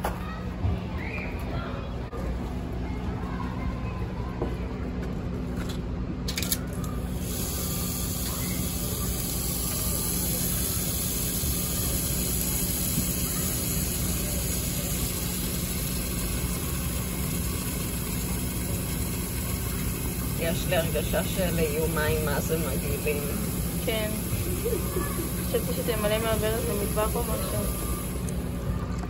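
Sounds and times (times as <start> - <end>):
tap water pouring into a tub: 7.3 - 28.4.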